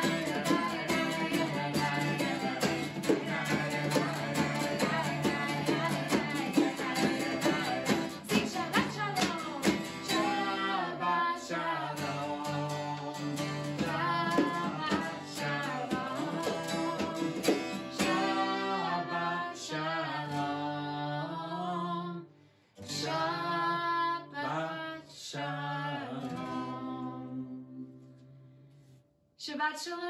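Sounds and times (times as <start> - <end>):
strummed acoustic guitar: 0.0 - 21.1, 22.4 - 23.6, 26.1 - 28.9
woman singing: 0.0 - 22.2, 22.9 - 27.9, 29.4 - 30.0.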